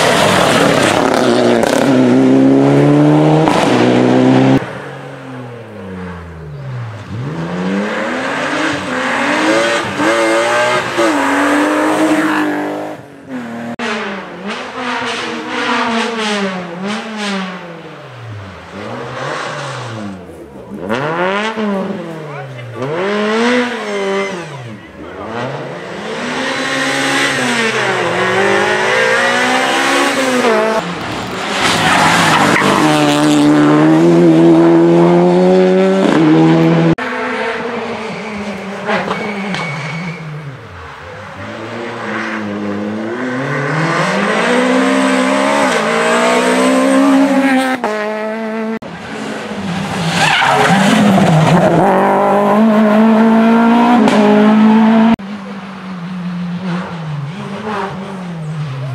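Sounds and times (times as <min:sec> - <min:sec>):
rally car engines revving: 0:00.0 - 0:58.9
tyre squeal: 0:38.1 - 0:40.6.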